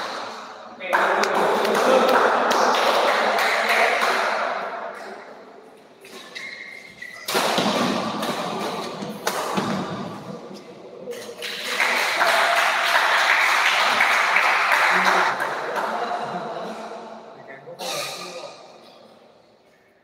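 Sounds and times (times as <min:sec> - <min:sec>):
crowd noise in hall: 0:00.0 - 0:20.0
rackets hitting shuttlecock: 0:06.0 - 0:10.2.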